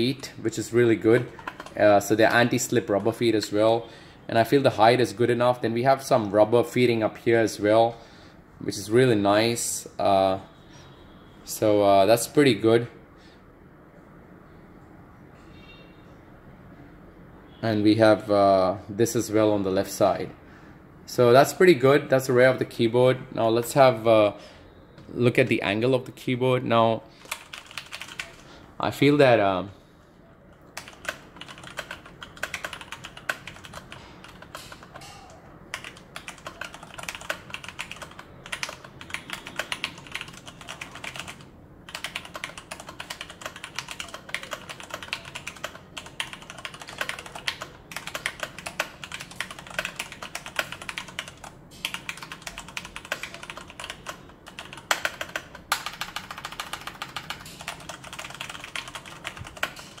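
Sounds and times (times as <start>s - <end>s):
mechanical keyboard typing: 1.2s - 3.2s, 27.2s - 28.4s, 30.6s - 60.0s.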